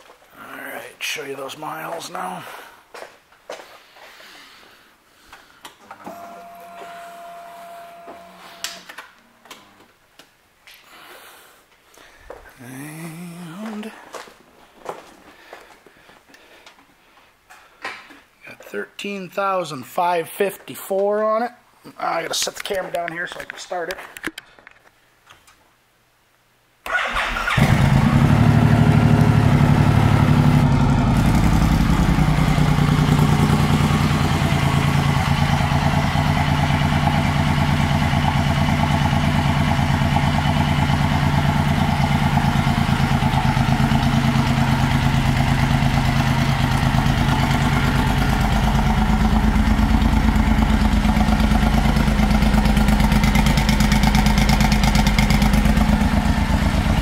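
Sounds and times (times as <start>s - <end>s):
motorcycle engine starting and idling: 26.9s - 57.0s.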